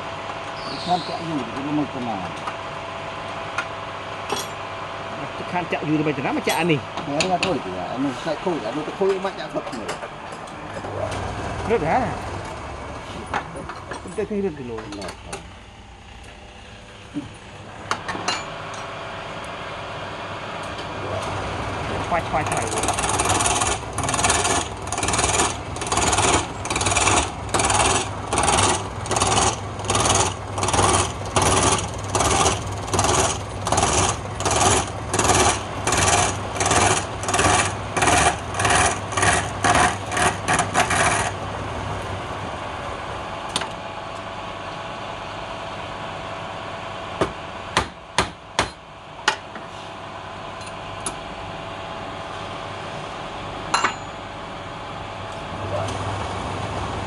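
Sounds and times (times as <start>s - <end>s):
lathe motor hum: 0.0s - 47.6s
chisel scraping spinning wood: 22.2s - 41.4s
sharp knocks: 47.2s - 48.8s.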